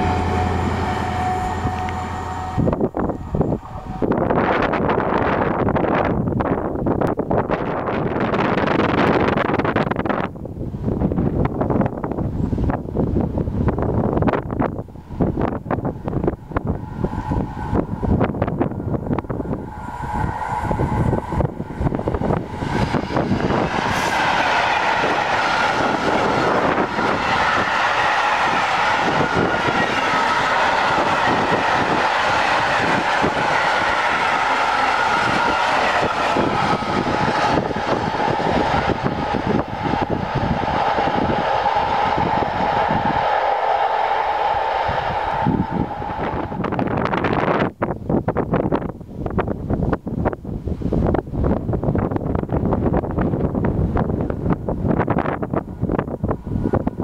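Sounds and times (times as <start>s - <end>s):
high ringing tone: 0.0s - 4.8s
freight train passing: 0.0s - 57.0s.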